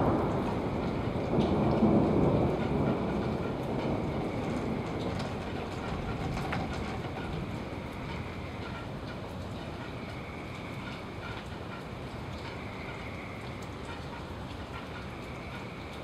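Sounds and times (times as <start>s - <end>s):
rolling thunder: 0.0s - 9.2s
rain falling: 0.0s - 16.0s.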